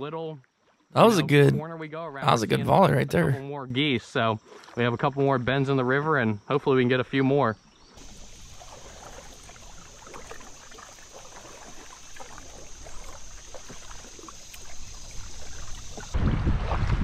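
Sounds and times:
paddles splashing in water: 4.4s - 5.0s, 8.0s - 17.0s
high insect drone: 8.0s - 16.2s
rushing water: 8.0s - 17.0s
wind noise on microphone: 16.0s - 17.0s.

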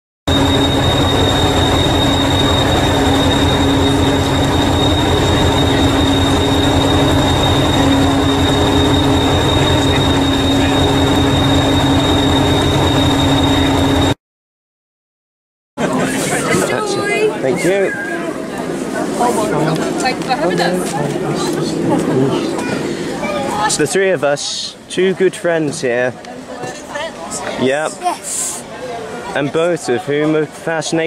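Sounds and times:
diesel engine idling: 0.3s - 14.1s
high-pitched whine: 0.3s - 14.2s.

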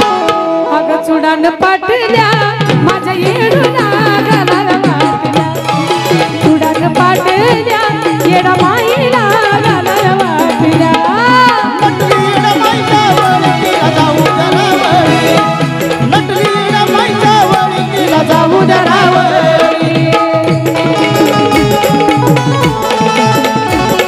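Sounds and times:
accompanying instruments: 0.0s - 24.0s
woman singing amplified: 0.0s - 24.0s
hand drum rhythm: 1.7s - 24.0s.

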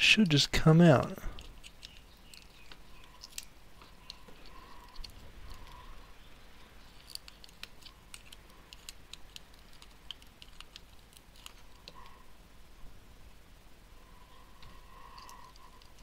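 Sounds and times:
small clicks and ticks: 1.3s - 12.2s, 14.6s - 16.0s.

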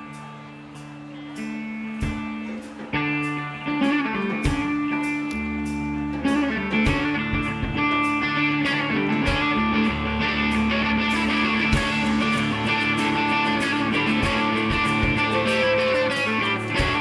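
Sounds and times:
rock band playing: 0.0s - 17.0s
heavy drum hits: 11.6s - 15.8s.

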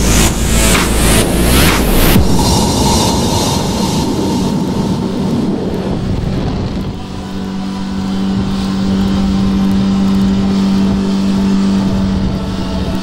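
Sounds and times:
outboard motor running hard: 6.0s - 13.0s.

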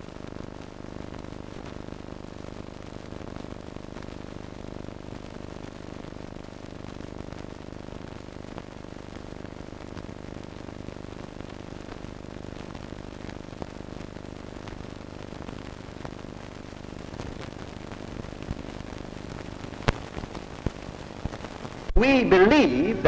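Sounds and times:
sharp crackles: 0.0s - 21.9s
film soundtrack hiss and hum: 0.0s - 23.0s.

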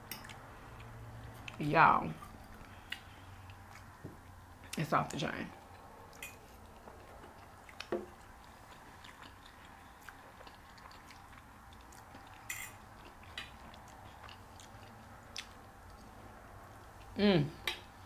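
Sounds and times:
faint chewing: 0.1s - 17.2s
eating clicks and smacks: 5.6s - 16.1s.

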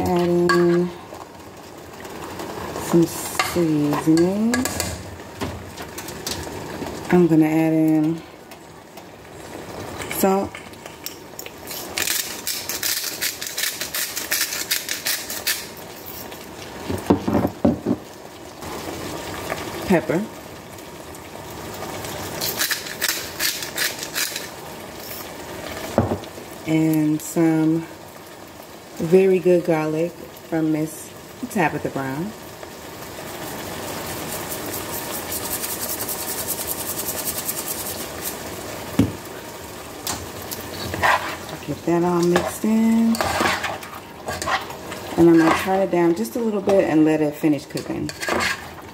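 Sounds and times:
seasoning shaker rattling: 11.7s - 16.4s, 22.4s - 25.2s, 34.1s - 38.5s
salt grinder crunching: 22.4s - 24.5s
soft hiss from pot: 33.5s - 38.8s.

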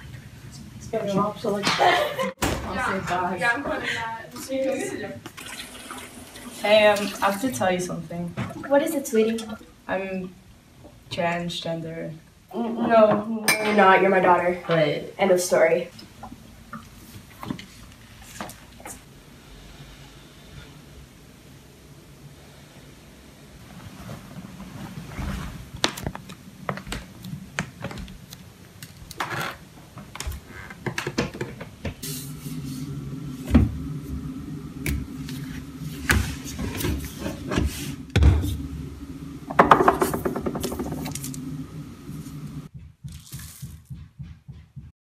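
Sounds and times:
steady low hum: 31.6s - 42.9s.

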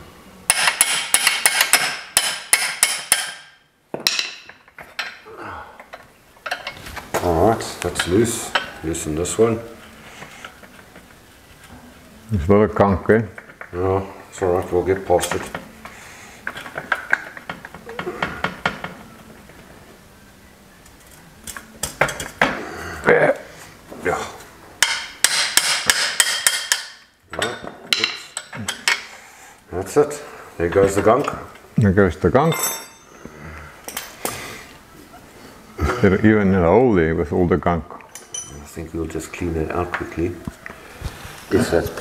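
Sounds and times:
hammer striking metal spanner: 0.5s - 5.2s, 24.8s - 29.0s
spanner clinking on metal: 32.5s - 33.1s, 38.1s - 38.6s.

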